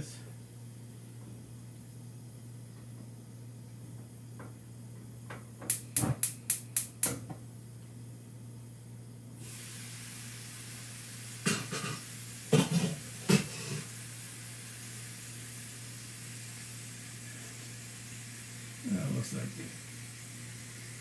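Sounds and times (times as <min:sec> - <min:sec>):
pan sizzling and hissing: 0:09.4 - 0:21.0.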